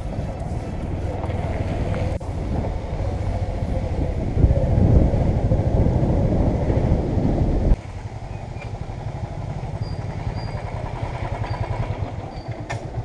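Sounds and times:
motorcycle engine rumbling: 0.0 - 13.0
motorcycle engines idling: 7.8 - 13.0.

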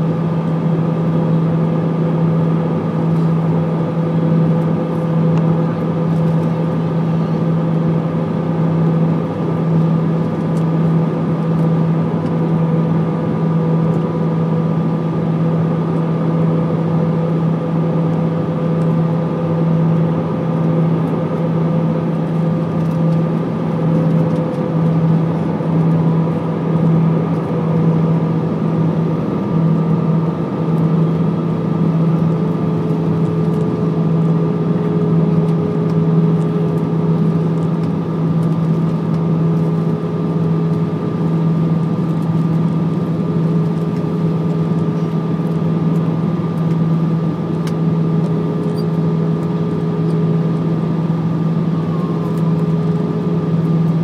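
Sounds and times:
jet engine drone: 0.0 - 54.0
high whine: 48.0 - 54.0
mid-pitched tone sliding lower: 51.7 - 52.5.

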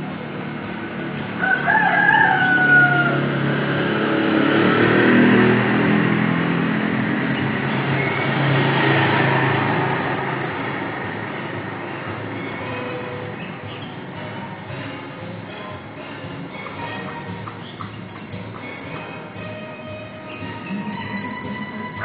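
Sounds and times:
street traffic passing: 0.0 - 22.0
rooster crowing: 1.4 - 3.6.

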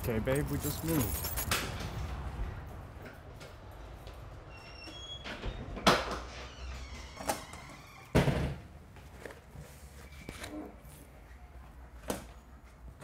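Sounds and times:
door shutting: 4.6 - 8.6.

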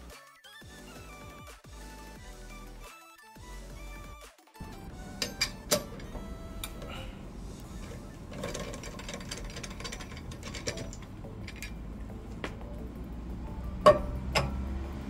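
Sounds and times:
mechanical clicking and rattling: 4.6 - 12.6.

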